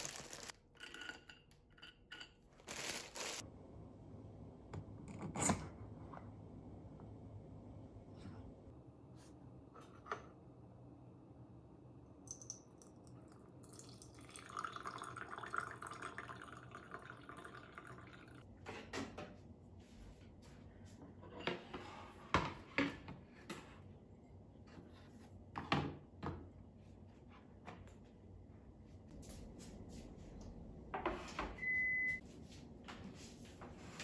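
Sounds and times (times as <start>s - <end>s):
coffee pouring into glass cup: 12.3s - 18.4s.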